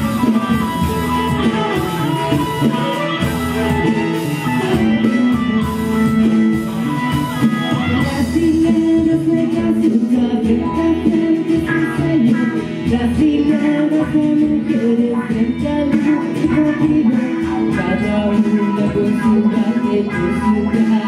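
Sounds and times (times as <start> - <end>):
live band playing: 0.0 - 21.0
person singing: 0.0 - 21.0.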